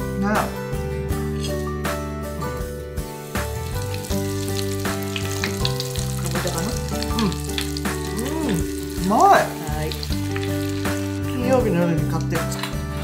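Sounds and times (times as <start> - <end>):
food deep-frying in oil: 3.4 - 12.7.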